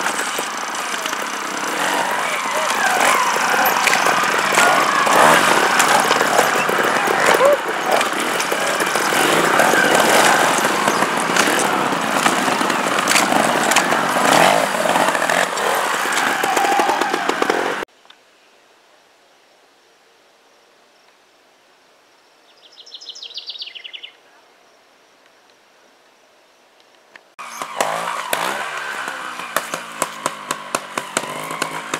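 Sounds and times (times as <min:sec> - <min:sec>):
motorcycle engine revving: 0:00.0 - 0:17.9, 0:27.4 - 0:31.9
songbird trilling: 0:22.5 - 0:24.2.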